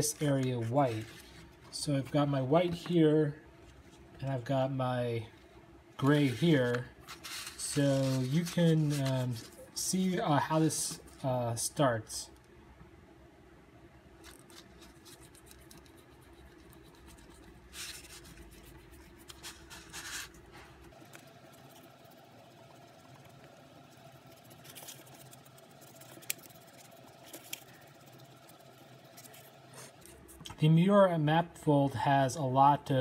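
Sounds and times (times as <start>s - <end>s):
oil pastel scratching on paper: 6.2s - 9.6s, 14.2s - 20.4s, 24.2s - 30.4s.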